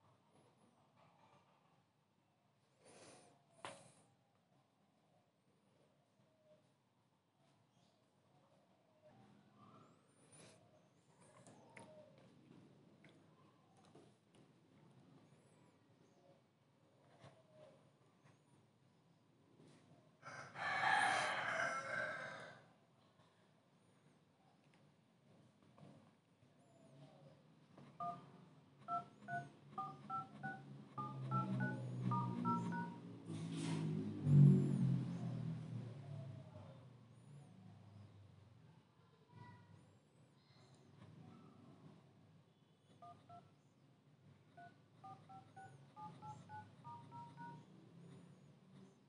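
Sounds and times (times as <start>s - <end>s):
touch-tone keypad beeps: 28.0s - 28.3s, 28.9s - 33.0s, 43.0s - 43.5s, 44.6s - 47.7s.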